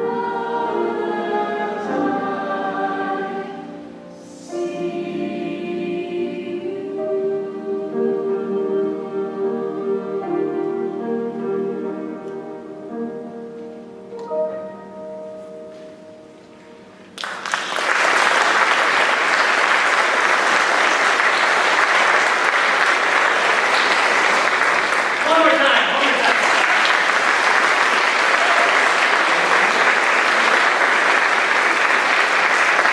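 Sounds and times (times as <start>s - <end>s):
mixed choir holding a chord: 0.0s - 17.1s, 18.1s - 32.9s
audience applause: 17.2s - 32.9s.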